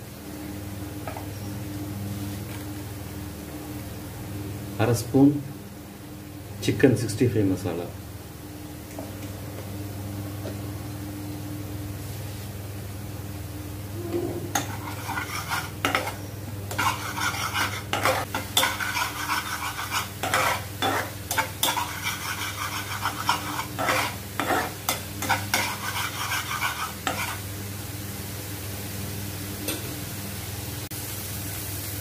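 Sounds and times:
metal spatula scraping a pan: 14.0 - 27.4
paste sizzling: 14.5 - 27.6.

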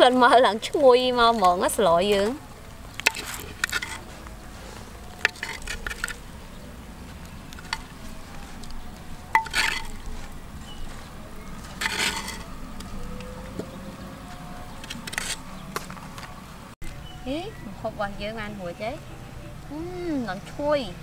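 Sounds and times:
metal spoon scraping clay pot: 3.0 - 6.7, 7.3 - 12.9, 14.8 - 15.5.

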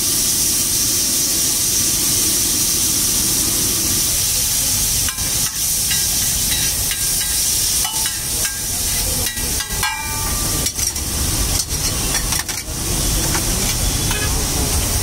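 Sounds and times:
egg sizzling on a griddle: 0.0 - 15.0.

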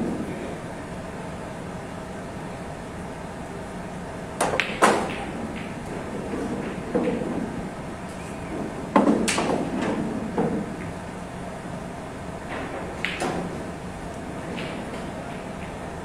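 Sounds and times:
pool balls knocking: 4.4 - 16.0.

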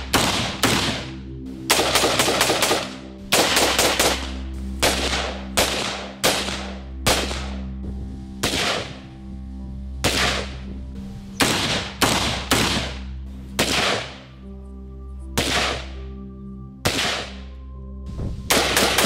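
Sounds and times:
rifle gunshots with echo: 0.0 - 7.7, 8.4 - 9.1, 10.0 - 10.7, 11.4 - 14.3, 15.4 - 16.0, 16.8 - 17.5, 18.5 - 19.0
background music: 0.0 - 19.0.

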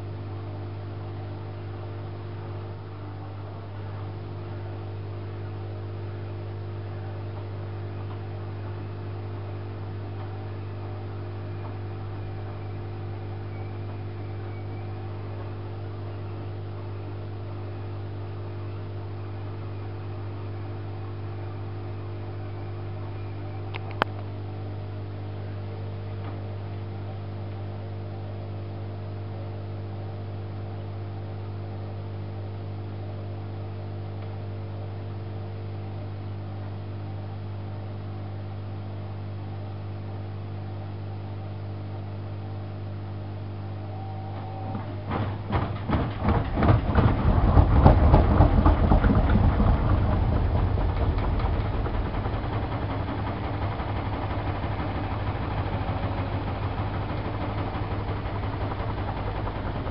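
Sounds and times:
washing machine drain pump hum: 0.0 - 59.9
pump gurgling rattle: 45.0 - 59.9.

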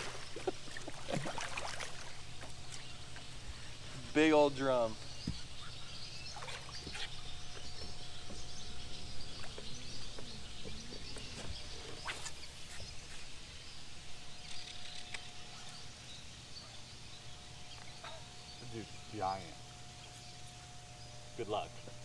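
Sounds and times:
steady low hum: 0.0 - 22.0
thin steady whine: 0.0 - 22.0
faint chirps: 2.0 - 22.0.

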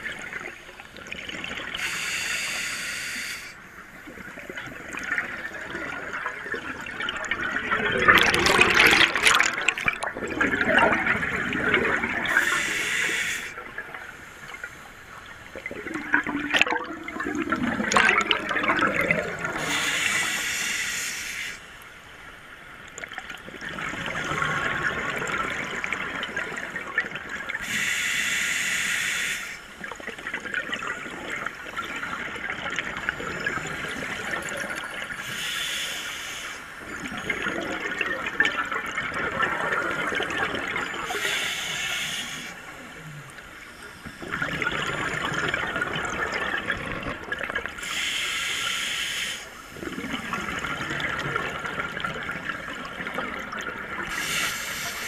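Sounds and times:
regulator inhale hiss: 1.8 - 3.8, 12.3 - 13.6, 19.6 - 21.8, 27.6 - 29.8, 35.2 - 36.8, 41.0 - 42.8, 47.8 - 49.7, 54.1 - 55.0
bubbling exhale underwater: 4.2 - 13.2, 15.6 - 20.3, 44.1 - 48.2, 49.8 - 54.9.

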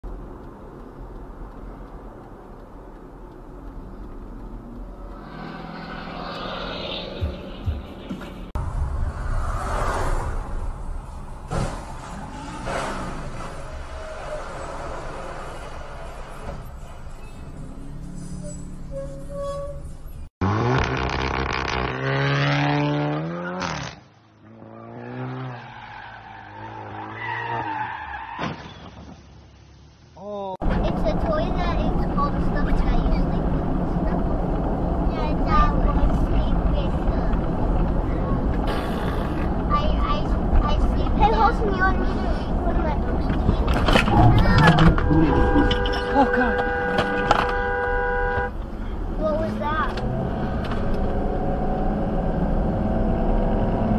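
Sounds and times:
faint ticks: 0.0 - 5.8
car interior road rumble: 0.0 - 18.1, 30.6 - 53.9.

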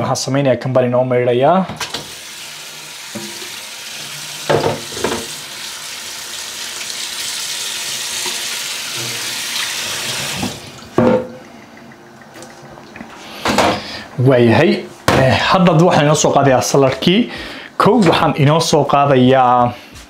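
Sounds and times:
tap water splashing in sink: 3.1 - 5.5, 8.2 - 13.1
knocks on cutting board: 4.5 - 5.3.

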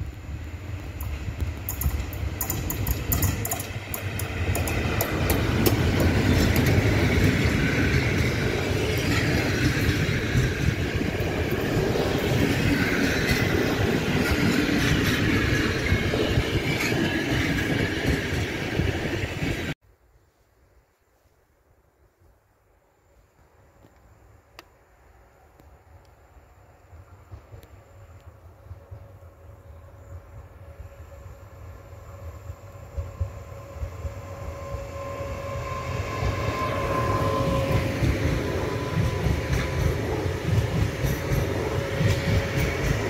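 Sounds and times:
train rolling rumble and clatter: 0.0 - 19.8, 25.6 - 43.0
rapid sharp clicks: 1.0 - 6.7.

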